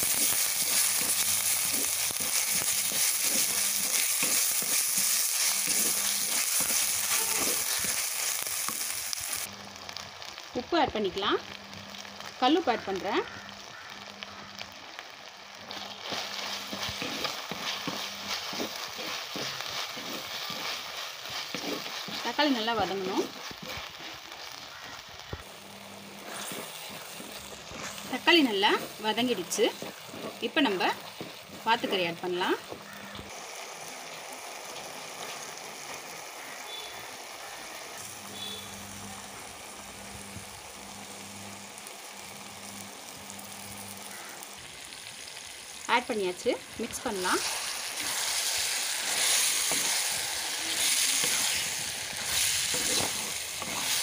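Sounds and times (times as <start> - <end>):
wooden spatula scraping a pot: 0.0 - 8.1, 15.8 - 24.2, 26.2 - 32.8, 47.3 - 54.0
hot oil sizzling: 0.0 - 54.0.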